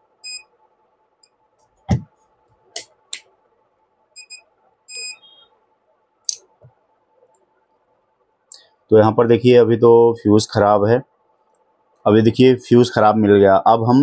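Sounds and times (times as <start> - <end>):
circuit board thump: 1.9 - 2.1
multimeter short beeps: 4.2 - 5.5.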